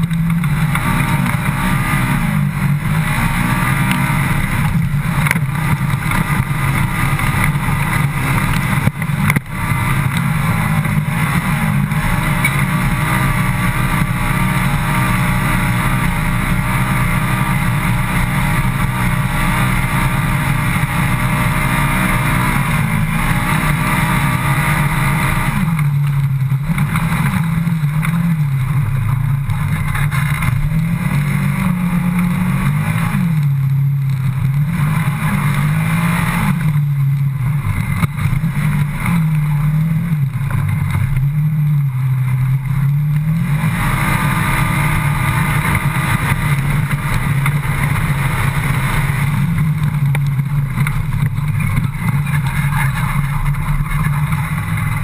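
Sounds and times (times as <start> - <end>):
engine revving: 0.0 - 55.0.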